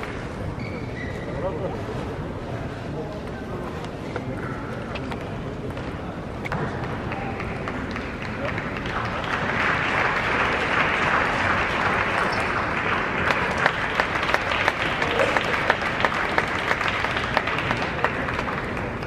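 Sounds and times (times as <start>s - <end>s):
crowd applauding: 6.5s - 19.0s.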